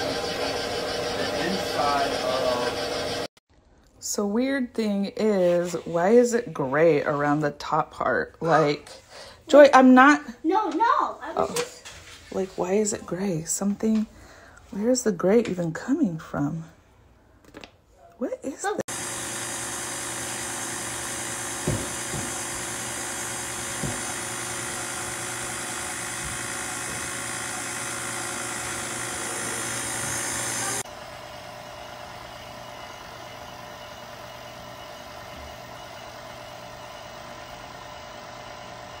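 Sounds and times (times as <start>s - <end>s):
stand mixer motor running: 0.0s - 3.3s, 18.9s - 39.0s.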